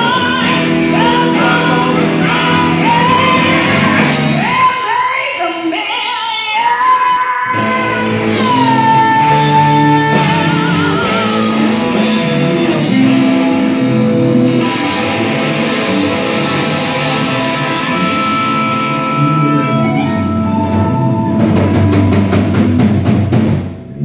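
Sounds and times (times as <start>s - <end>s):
live rock band playing: 0.0s - 24.0s
long held high note: 17.2s - 22.4s.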